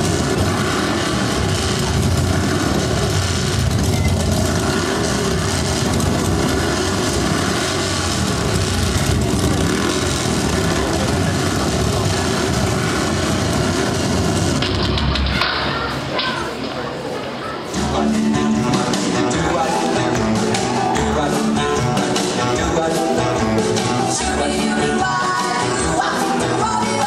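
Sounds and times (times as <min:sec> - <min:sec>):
motorcycle engine over speakers: 0:00.0 - 0:15.5.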